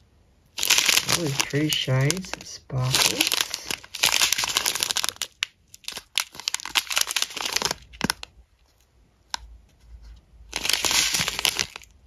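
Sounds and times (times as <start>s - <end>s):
plastic bags crinkling: 0.5s - 8.3s, 10.5s - 12.0s.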